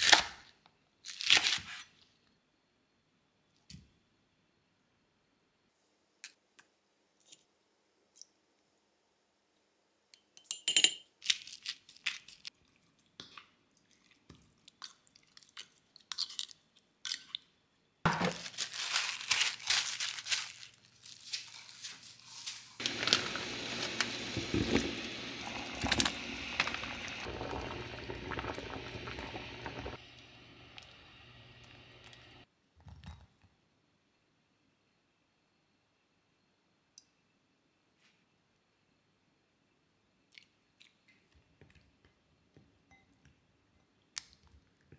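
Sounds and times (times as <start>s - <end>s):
low appliance hum: 22.0s - 32.4s.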